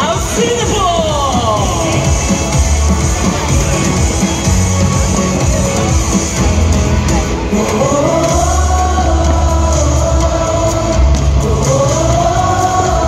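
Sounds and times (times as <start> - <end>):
show music over sound system: 0.0 - 13.0.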